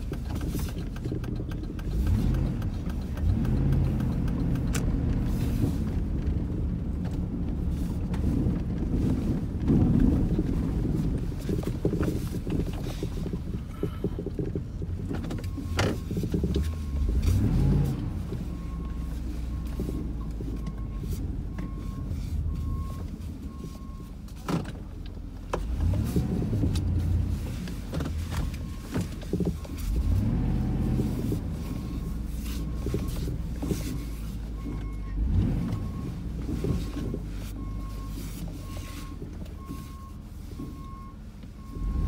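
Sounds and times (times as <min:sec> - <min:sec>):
vehicle engine revving: 0:00.0 - 0:11.0, 0:15.0 - 0:20.2, 0:25.6 - 0:38.0, 0:41.6 - 0:42.0.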